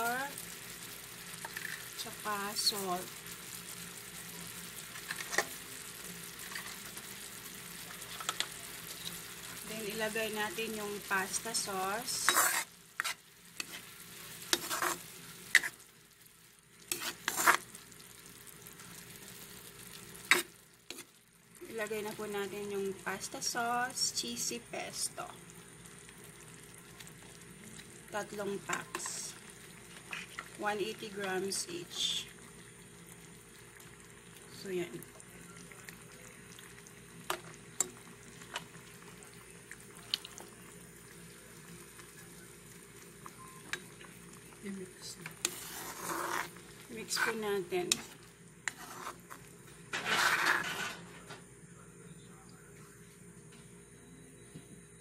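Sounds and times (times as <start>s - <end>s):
faint sizzle: 0.0s - 55.0s
spatula scraping frying pan: 11.5s - 15.9s, 16.8s - 17.8s, 20.2s - 21.2s, 29.9s - 30.5s, 45.2s - 51.1s
sharp pops from pan: 20.2s - 21.0s.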